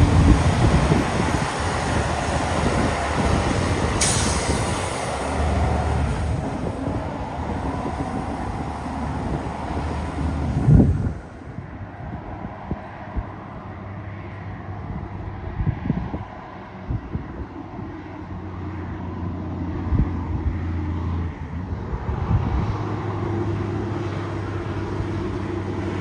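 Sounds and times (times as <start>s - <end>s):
road and wind noise: 0.0s - 26.0s
truck diesel engine under load: 0.0s - 26.0s
short air hiss: 4.0s - 5.2s.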